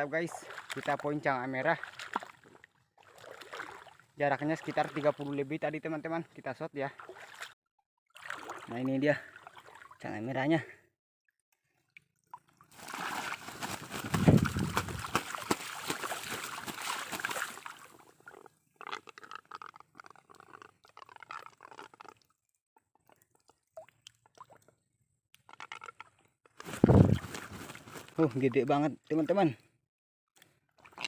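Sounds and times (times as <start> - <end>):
water splashing and sloshing: 0.0 - 5.6, 6.8 - 10.0, 11.6 - 22.4, 25.4 - 28.4.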